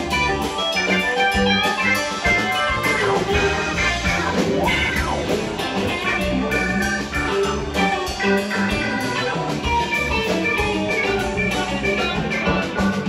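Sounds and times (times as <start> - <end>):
drum kit and bass: 0.0 - 13.0
electric guitar lead: 0.0 - 13.0.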